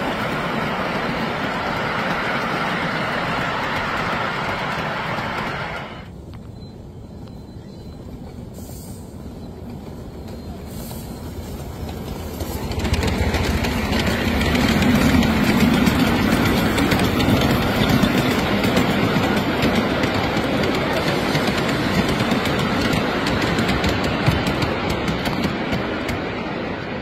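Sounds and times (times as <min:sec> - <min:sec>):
miniature train wheels clacking on rails: 0:09.7 - 0:26.4.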